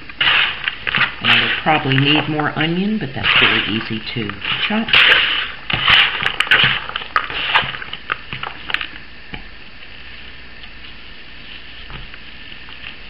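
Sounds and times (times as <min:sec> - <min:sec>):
hands squishing ground meat: 0:00.2 - 0:08.9.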